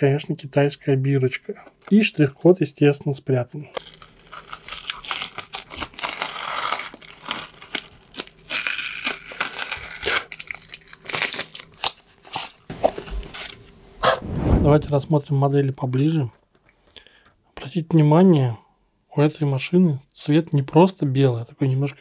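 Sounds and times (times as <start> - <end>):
packaging crinkling and tearing: 3.8 - 13.6.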